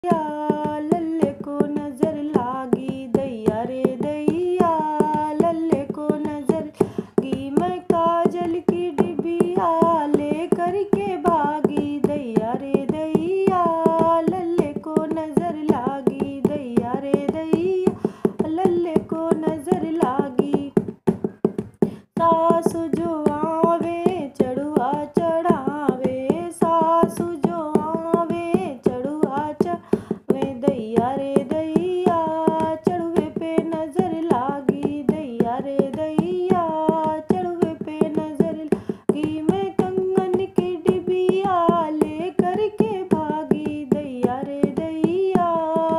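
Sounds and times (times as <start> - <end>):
woman singing a folk song: 0.0 - 45.9
hand drum playing steady rhythm: 4.2 - 33.3.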